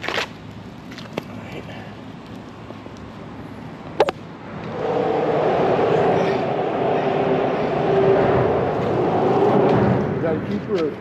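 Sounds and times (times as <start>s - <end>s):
traffic crossing bridge hum: 0.0s - 11.0s.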